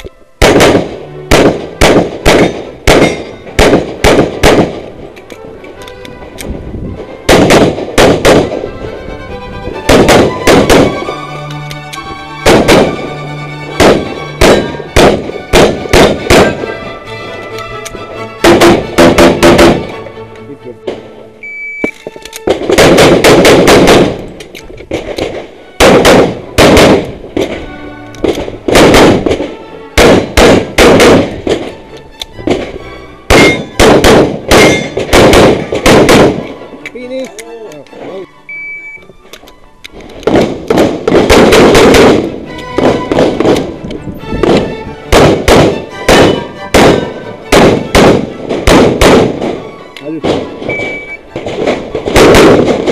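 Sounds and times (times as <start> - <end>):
background music: 0.0 - 52.9
pistol shots: 0.4 - 5.0, 7.3 - 8.6, 9.9 - 11.1, 12.4 - 13.1, 13.8 - 16.8, 18.4 - 19.9, 21.8 - 27.6, 28.2 - 31.8, 33.3 - 36.6, 40.2 - 43.7, 44.4 - 49.6, 50.2 - 52.9.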